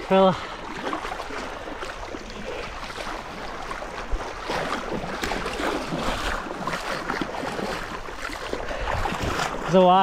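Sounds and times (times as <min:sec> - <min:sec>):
small surf splashing: 0:00.0 - 0:10.0.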